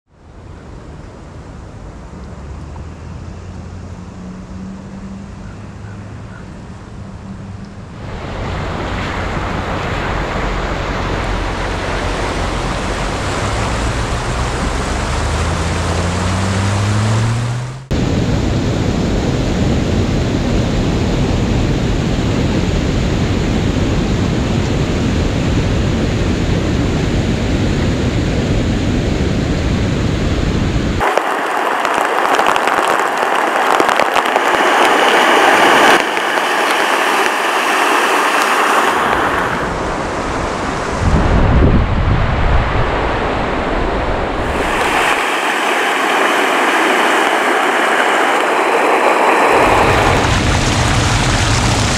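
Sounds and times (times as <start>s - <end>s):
low hum rising in pitch: 7.6s - 20.6s
floodwater rushing: 7.8s - 19.4s, 22.1s - 51.9s
water pouring over a bank: 8.0s - 17.6s, 31.0s - 39.7s, 44.4s - 51.9s
car tyre spraying through water: 8.0s - 17.9s, 31.0s - 40.4s, 44.4s - 51.9s.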